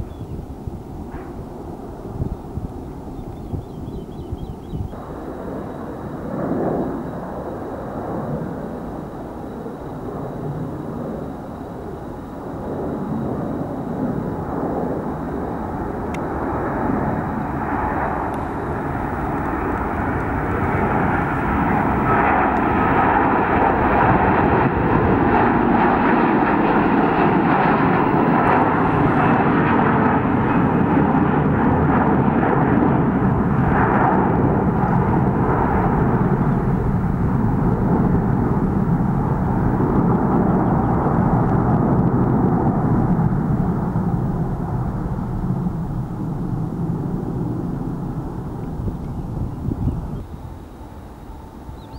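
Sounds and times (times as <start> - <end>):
jet airliner taking off: 0.0 - 51.9.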